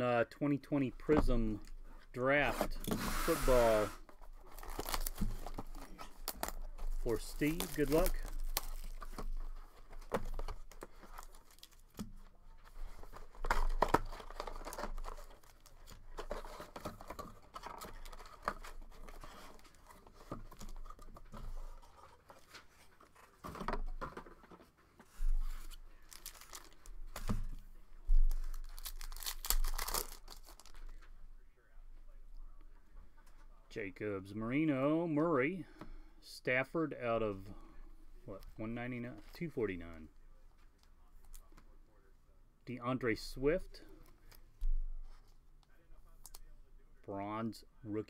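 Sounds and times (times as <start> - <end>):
box being opened: 2.5 - 11.8
foil pack tearing and crinkling: 4.4 - 9.0, 26.1 - 26.9, 28.6 - 30.7.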